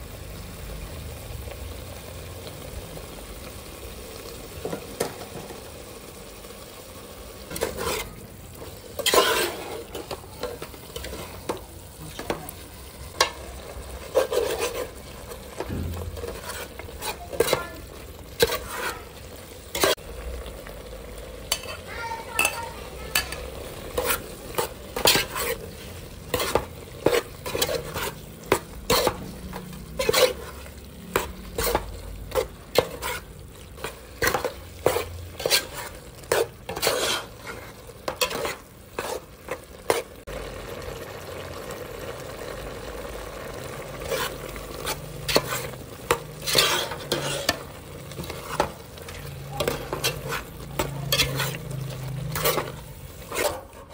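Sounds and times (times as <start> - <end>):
meat sizzling in a pot: 0.0 - 53.9
spatula scraping a metal pot: 7.5 - 12.4, 13.1 - 20.0, 21.5 - 40.2, 43.9 - 53.9.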